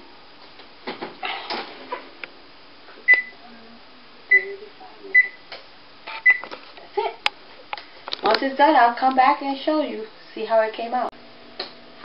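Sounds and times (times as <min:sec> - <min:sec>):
oven control panel beeps: 0:03.1 - 0:03.3, 0:05.2 - 0:05.4, 0:06.2 - 0:06.4.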